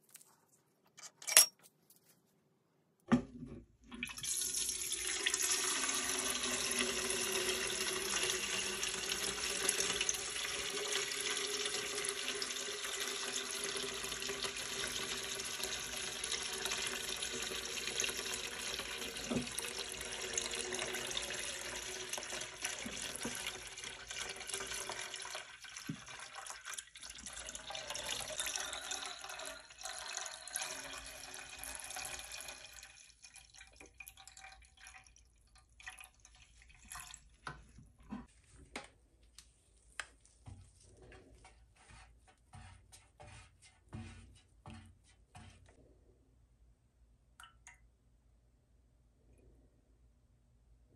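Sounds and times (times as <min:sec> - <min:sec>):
molten wax pouring: 0:03.9 - 0:38.3.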